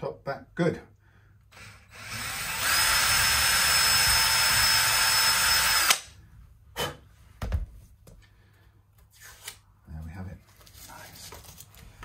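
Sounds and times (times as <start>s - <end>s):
cordless drill whining: 1.5s - 6.1s.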